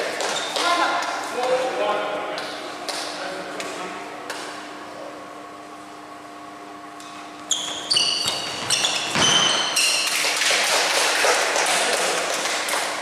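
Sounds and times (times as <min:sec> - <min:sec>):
shoes squeaking on court: 0:00.2 - 0:00.7, 0:07.1 - 0:10.4
quick claps: 0:10.1 - 0:13.0.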